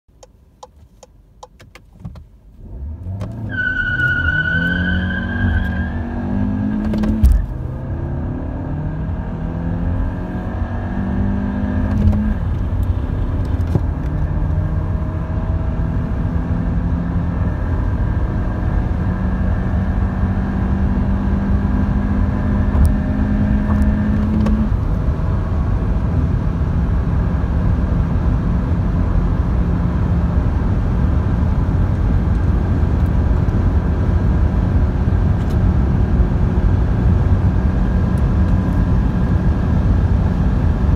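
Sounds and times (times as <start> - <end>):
road and wind noise: 0.1 - 40.9
car engine accelerating: 2.6 - 40.9.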